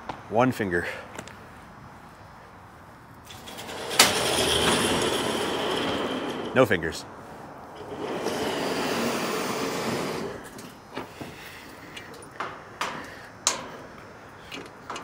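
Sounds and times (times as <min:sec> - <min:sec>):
metal gate clanking and rattling: 0:03.3 - 0:07.0, 0:07.8 - 0:15.0.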